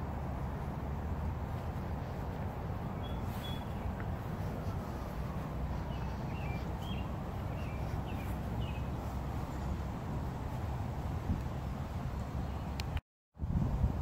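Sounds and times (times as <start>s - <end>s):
low outdoor rumble: 0.0s - 14.0s
bird chirping short high calls: 3.0s - 5.1s, 5.7s - 9.0s.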